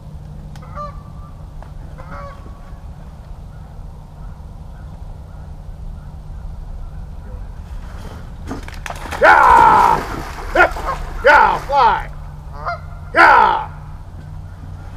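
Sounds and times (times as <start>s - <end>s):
steady low rumble: 0.0s - 14.9s
goose honks: 0.6s - 2.8s, 10.5s - 13.8s.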